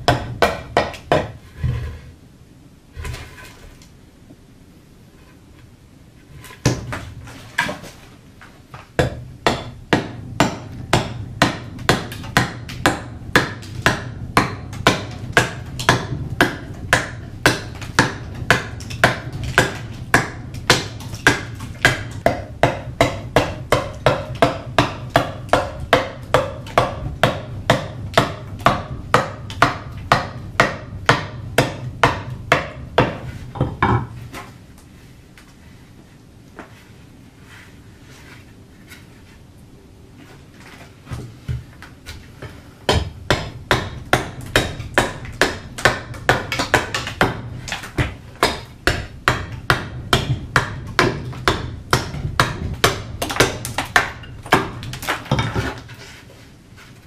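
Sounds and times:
axe chopping wood: 0.0s - 1.4s, 6.6s - 7.9s, 8.7s - 34.2s, 42.9s - 55.9s.

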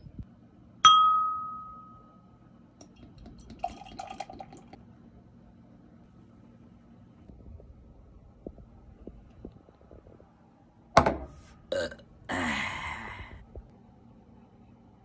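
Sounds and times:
glass tapped ringing: 0.8s - 2.2s
beer pouring into glass: 2.8s - 4.8s.

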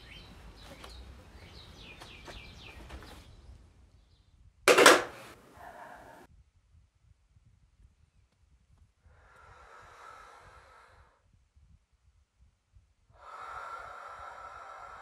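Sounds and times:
person breathing deeply: 9.0s - 11.2s, 13.1s - 15.0s.

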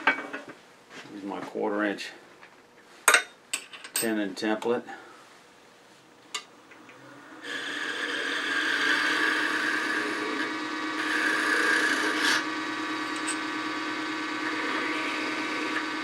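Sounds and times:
lathe humming: 6.8s - 16.0s
tool scraping wood: 7.4s - 12.4s, 14.5s - 16.0s.

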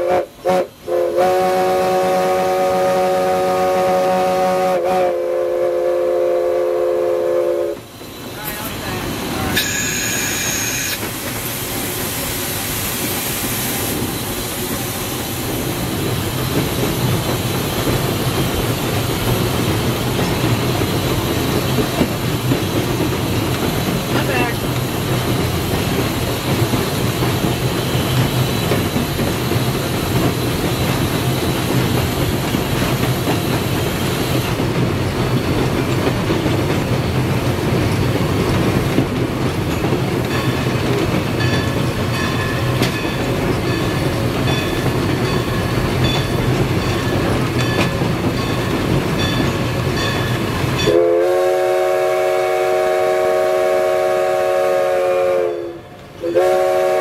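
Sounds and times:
steam whistle blast: 0.0s - 7.8s, 9.6s - 11.0s, 50.8s - 57.0s
steam locomotive rumble and rattle: 0.0s - 57.0s.

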